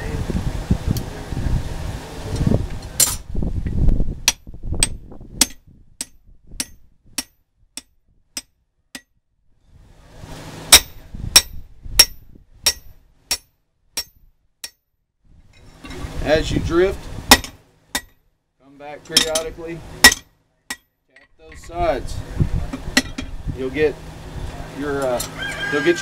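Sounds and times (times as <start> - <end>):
hammer striking steel: 4.3 - 9.1, 10.7 - 14.8, 17.3 - 18.2, 19.1 - 20.9.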